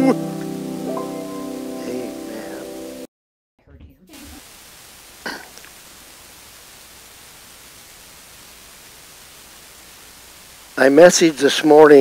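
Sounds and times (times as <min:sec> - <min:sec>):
hymn accompaniment chord: 0:00.0 - 0:03.1
microphone hiss: 0:00.0 - 0:12.0
person clearing throat: 0:05.2 - 0:05.6.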